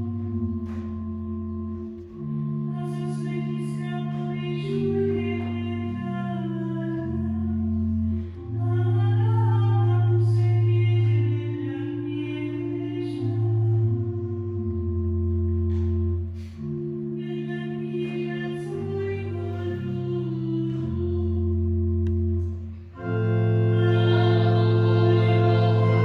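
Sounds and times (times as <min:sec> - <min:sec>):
organ chords: 0:00.0 - 0:26.0
congregation singing a hymn: 0:23.0 - 0:26.0.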